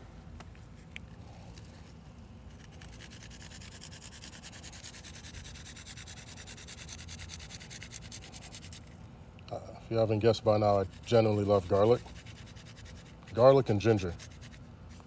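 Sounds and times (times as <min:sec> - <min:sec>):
garlic scraping on grater: 0:10.5 - 0:14.6.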